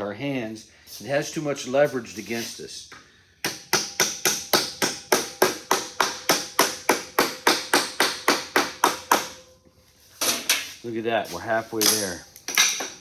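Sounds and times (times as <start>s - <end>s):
rubber mallet tapping sheet metal: 3.4s - 9.6s.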